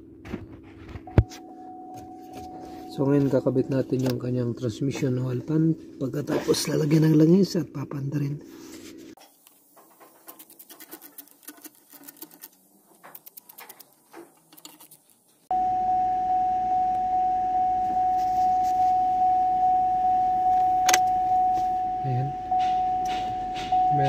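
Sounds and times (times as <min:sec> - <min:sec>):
car warning chime pulsing: 0:01.1 - 0:04.4, 0:15.5 - 0:24.0.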